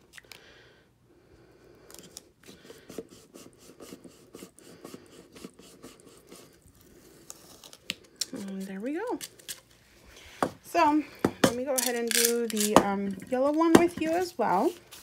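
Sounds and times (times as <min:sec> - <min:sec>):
tape crackling and rustling: 0:01.8 - 0:10.0, 0:11.5 - 0:15.0.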